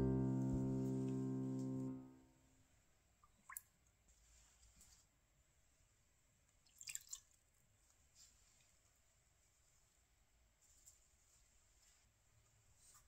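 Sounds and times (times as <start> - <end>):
faint liquid drips and splashes: 3.2 - 5.1, 6.4 - 8.8.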